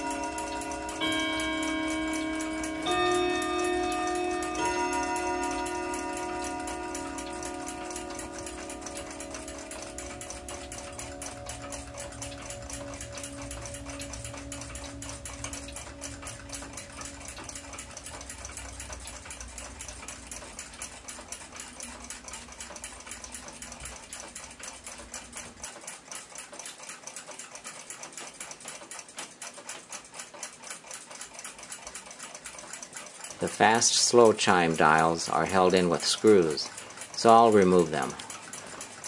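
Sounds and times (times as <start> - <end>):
low hum: 0.0 - 23.8
rapid ticking: 0.0 - 39.0.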